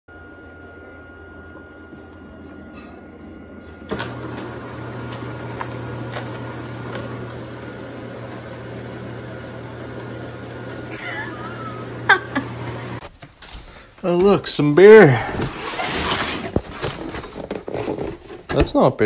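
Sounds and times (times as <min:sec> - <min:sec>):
litter box motor humming: 0:00.1 - 0:13.0.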